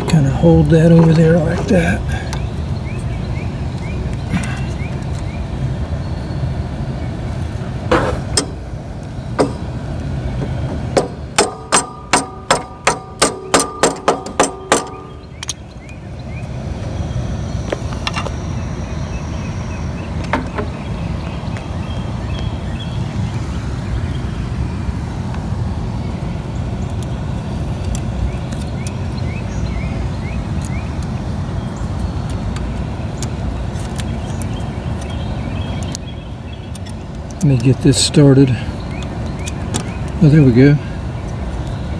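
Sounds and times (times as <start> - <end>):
steady low rumble: 0.0 - 41.9
ringing metal taps: 7.9 - 8.7, 9.4 - 9.7, 10.4 - 15.6.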